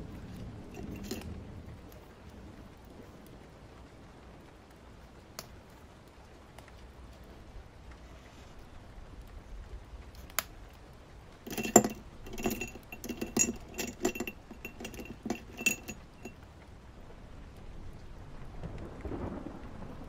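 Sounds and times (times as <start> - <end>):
rain: 0.0 - 12.3, 16.0 - 20.0
small hard objects clinking: 0.3 - 1.3, 11.5 - 16.4.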